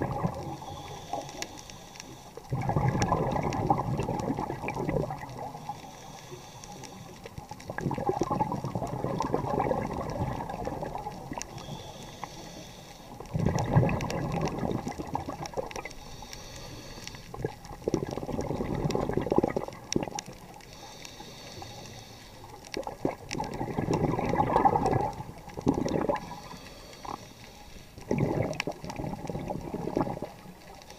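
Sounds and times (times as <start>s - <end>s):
exhaust bubbles underwater: 0.0s - 1.2s, 2.4s - 5.7s, 7.3s - 11.6s, 13.2s - 15.9s, 17.3s - 20.6s, 22.6s - 27.2s, 28.0s - 30.8s
regulator inhale hiss: 0.4s - 2.5s, 5.4s - 7.5s, 11.4s - 13.3s, 15.8s - 17.6s, 20.6s - 22.6s, 26.2s - 28.0s.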